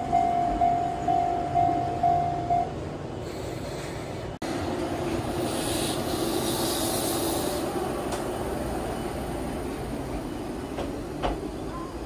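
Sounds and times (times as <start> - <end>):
train wheels rumbling on rail: 0.0 - 12.0
train hiss: 3.2 - 11.9.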